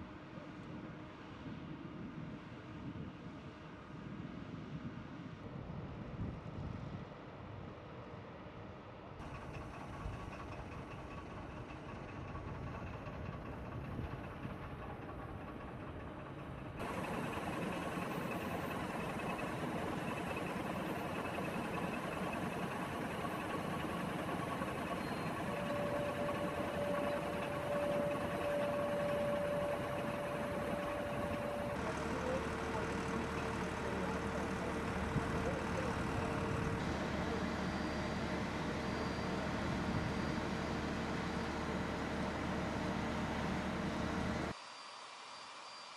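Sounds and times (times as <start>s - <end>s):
heavy vehicle engine running: 9.2s - 44.6s
steady high whine: 16.5s - 45.9s.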